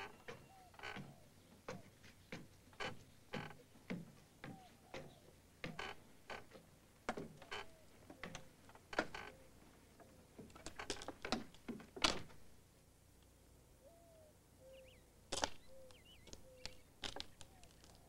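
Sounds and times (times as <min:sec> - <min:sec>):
footsteps on creaking boards: 0:00.0 - 0:09.4, 0:10.0 - 0:12.3.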